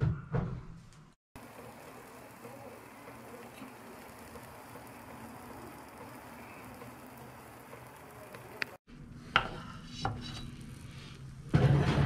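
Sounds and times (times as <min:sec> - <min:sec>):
pizza sizzling: 0:01.4 - 0:08.9, 0:09.5 - 0:12.0.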